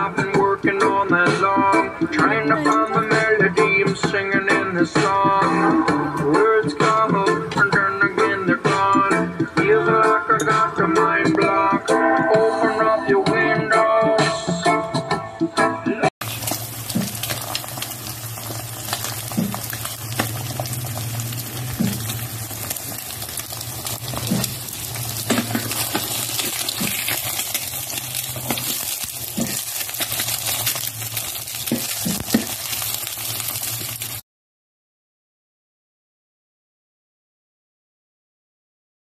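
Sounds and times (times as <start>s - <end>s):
egg sizzling and popping in pan: 16.2s - 34.2s.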